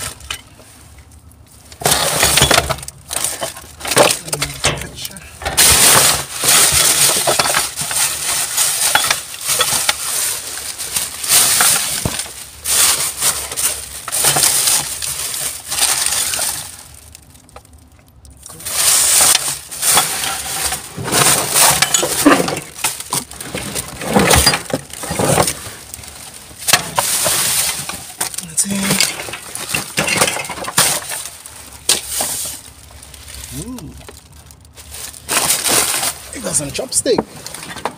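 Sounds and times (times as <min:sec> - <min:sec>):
plastic packaging crinkling: 0:00.0 - 0:37.7
hard items knocking and clinking: 0:01.8 - 0:10.0.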